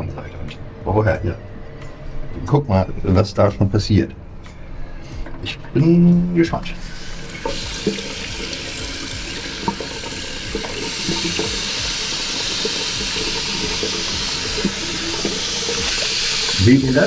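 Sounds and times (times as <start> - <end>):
tap water running into basin: 6.8 - 17.0.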